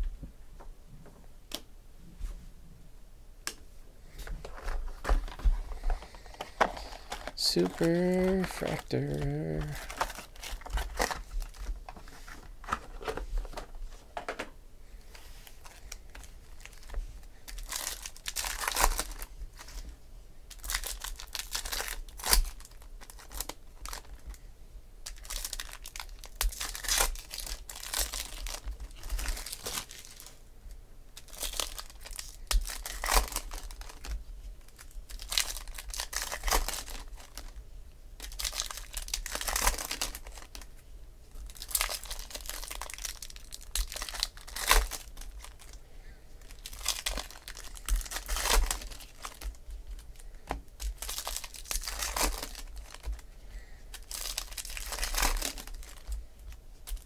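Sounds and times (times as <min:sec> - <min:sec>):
wrappers tearing and crinkling: 0:05.2 - 0:11.8, 0:15.4 - 0:19.8, 0:20.5 - 0:24.4, 0:25.0 - 0:30.4, 0:31.2 - 0:37.6, 0:38.2 - 0:40.7, 0:41.4 - 0:45.8, 0:46.4 - 0:50.0, 0:50.8 - 0:53.2, 0:53.9 - 0:56.2, 0:56.8 - 0:57.0.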